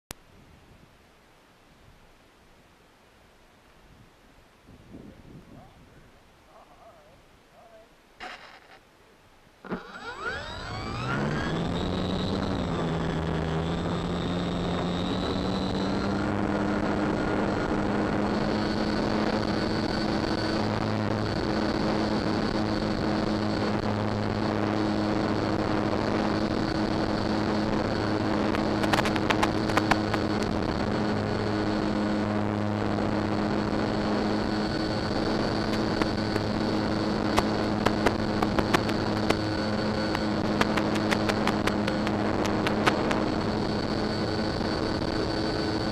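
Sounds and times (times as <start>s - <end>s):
electric motor and propeller hum: 8.2s - 8.8s, 9.6s - 45.9s
sharp clicks: 28.5s - 30.6s, 35.6s - 43.3s.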